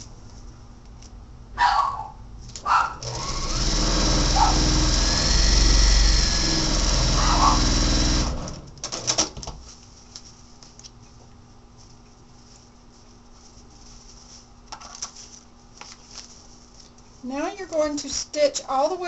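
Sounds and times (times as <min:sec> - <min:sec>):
sewing machine stitching: 0:03.0 - 0:09.2
paper rustling: 0:09.4 - 0:11.1, 0:11.8 - 0:18.3.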